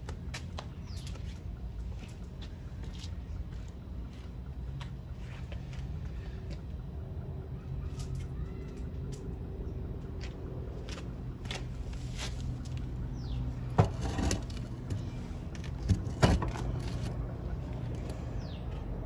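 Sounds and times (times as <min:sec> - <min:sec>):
steady low hum: 0:00.0 - 0:19.0
bird chirp: 0:00.6 - 0:01.4, 0:13.0 - 0:13.7, 0:18.1 - 0:18.8.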